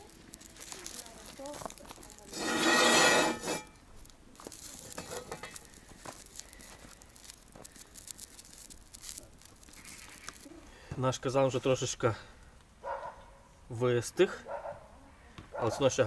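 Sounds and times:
wood fire crackling: 0.0s - 12.8s.

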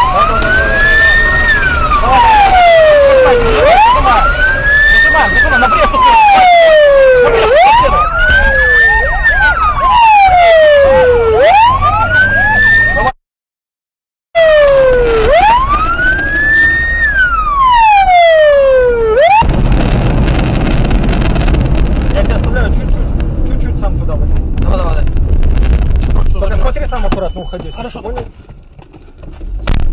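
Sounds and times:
car engine and road noise: 0.0s - 13.2s, 14.4s - 29.9s
police siren wailing: 0.0s - 13.2s, 14.4s - 19.6s.

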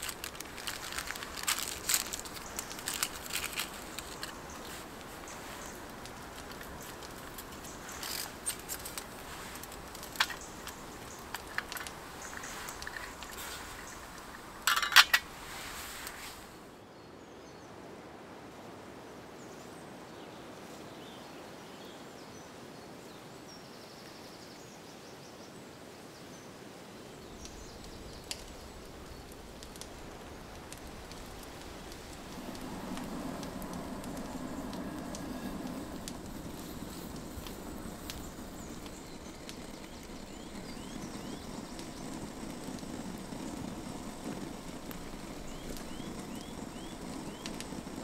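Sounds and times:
camp stove fire burning: 0.0s - 16.8s, 26.9s - 48.0s
woodland ambience: 0.0s - 17.9s, 23.1s - 48.0s.

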